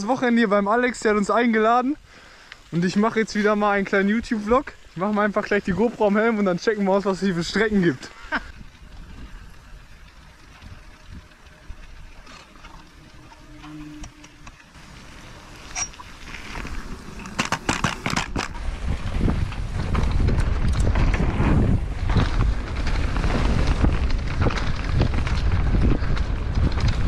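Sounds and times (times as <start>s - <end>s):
bike tyres and frame rattling: 0.0s - 27.0s
wind buffeting microphone: 5.4s - 14.2s, 14.8s - 27.0s.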